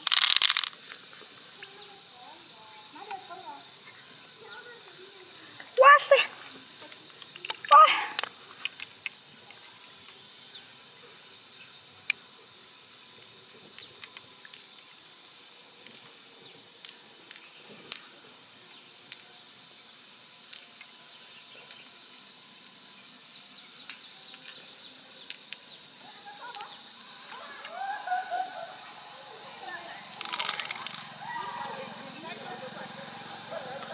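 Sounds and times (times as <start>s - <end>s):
pearls clicking against shell: 0.0s - 0.8s, 25.2s - 25.7s, 26.4s - 26.8s, 30.1s - 31.2s
insects singing: 0.0s - 33.9s.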